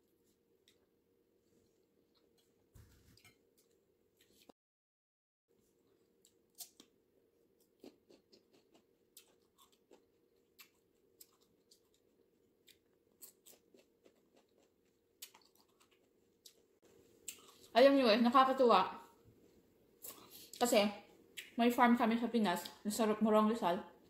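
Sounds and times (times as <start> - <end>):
low room hum: 0.0 - 4.5, 5.5 - 24.0
mouth chewing fruit: 7.6 - 17.7.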